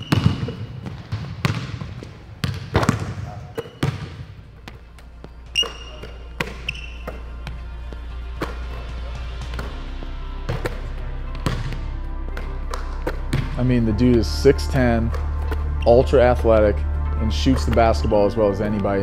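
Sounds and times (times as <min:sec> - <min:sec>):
basketballs bouncing on wooden floor: 0:00.0 - 0:07.6, 0:10.5 - 0:13.6
sneaker squeaks: 0:00.0 - 0:07.6.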